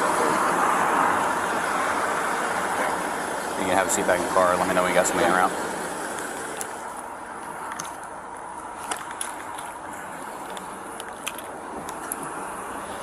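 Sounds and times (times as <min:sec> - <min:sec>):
outdoor background hiss: 0:00.0 - 0:13.0
faint clicks and rustles: 0:06.1 - 0:13.0.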